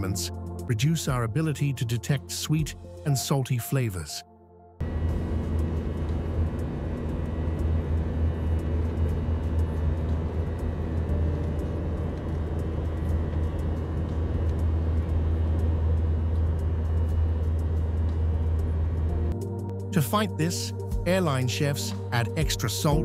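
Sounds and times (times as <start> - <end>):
jet engine cabin drone: 4.8 - 23.0.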